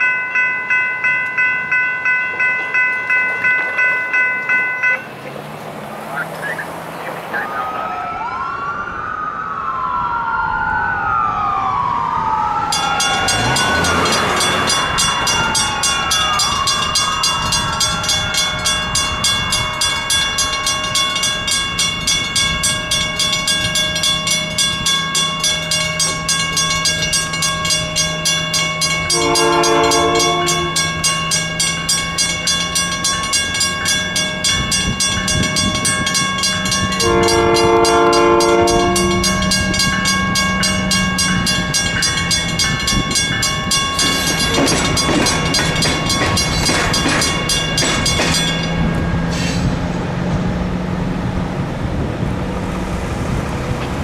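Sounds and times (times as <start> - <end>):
crossing bell ringing: 0.0 - 7.8, 12.6 - 52.1
siren wailing: 6.1 - 46.5
train horn blast: 29.1 - 31.0, 36.9 - 39.7.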